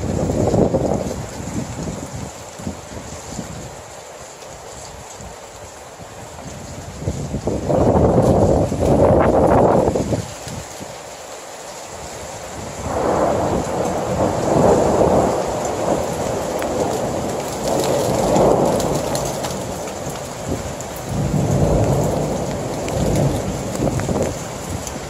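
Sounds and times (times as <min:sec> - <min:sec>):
thunder rolling: 0:00.0 - 0:02.9, 0:06.6 - 0:10.4, 0:12.6 - 0:25.0
steady rain: 0:00.0 - 0:25.0.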